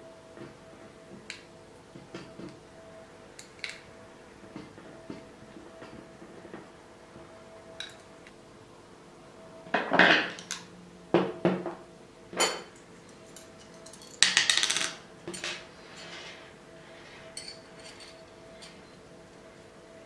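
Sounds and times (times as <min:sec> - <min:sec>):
metal brackets clinking and rattling: 0:12.4 - 0:16.2, 0:17.4 - 0:18.8.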